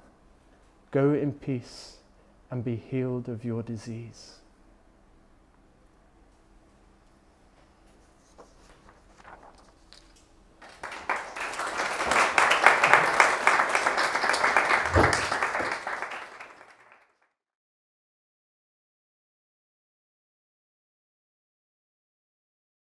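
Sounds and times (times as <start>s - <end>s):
audience applauding: 10.6s - 17.3s.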